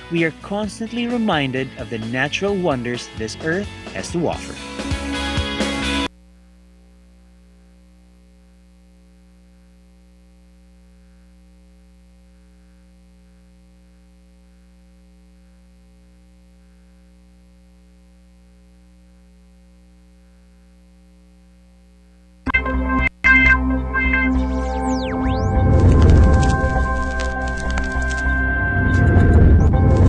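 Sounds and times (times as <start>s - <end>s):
faint mains hum: 6.0s - 30.0s.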